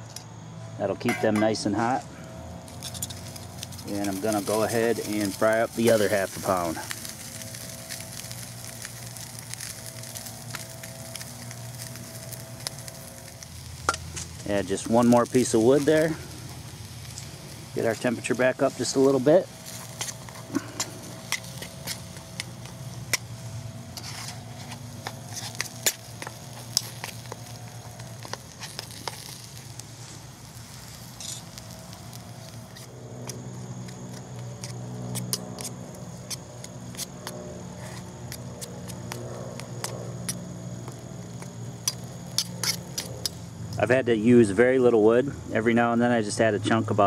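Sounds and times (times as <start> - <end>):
beef sizzling with pops: 1.1 - 44.7
metal utensil stirring meat: 2.7 - 29.8, 41.8 - 43.4.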